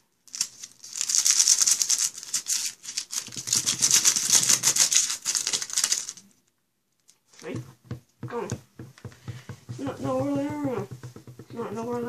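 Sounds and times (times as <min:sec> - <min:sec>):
paper wrapper crinkling: 0:00.2 - 0:07.4
dull rubbing: 0:07.4 - 0:12.0.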